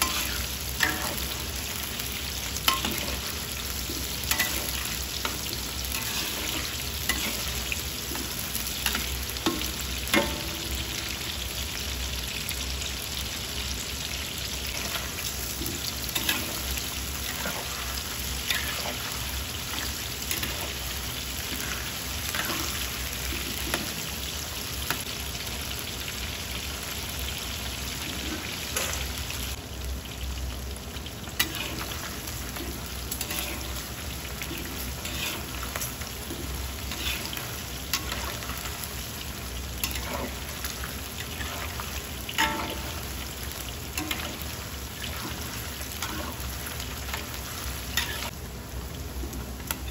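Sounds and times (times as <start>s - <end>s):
spatula scraping a wok: 0.0s - 1.6s, 2.6s - 9.6s, 14.7s - 24.0s, 31.4s - 38.8s, 39.8s - 43.1s, 45.0s - 48.3s
meat deep-frying in oil: 0.0s - 49.9s.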